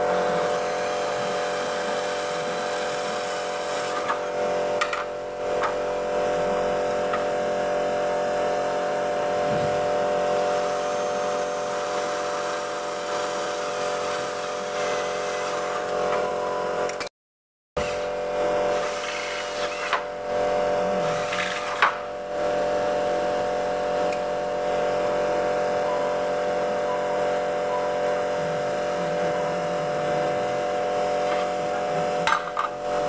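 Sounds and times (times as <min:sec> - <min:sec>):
cordless drill whining: 0:00.0 - 0:05.0, 0:09.5 - 0:16.4.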